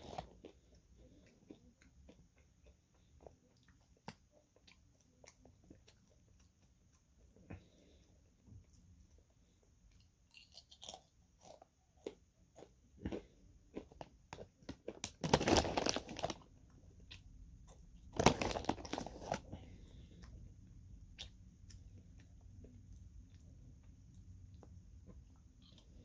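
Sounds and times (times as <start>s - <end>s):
banana chips crunching: 10.3s - 16.5s, 18.1s - 19.6s.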